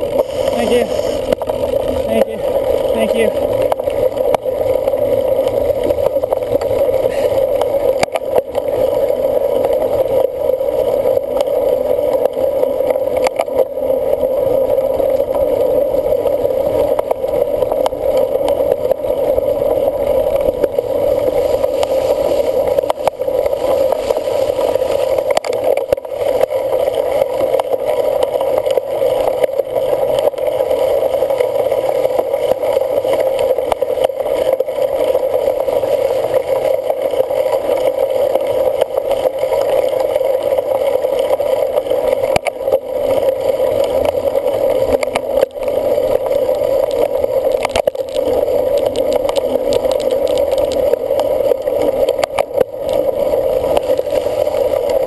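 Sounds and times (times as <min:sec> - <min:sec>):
bike tyres rolling: 0:00.0 - 0:55.0
wind rumble: 0:13.6 - 0:27.2.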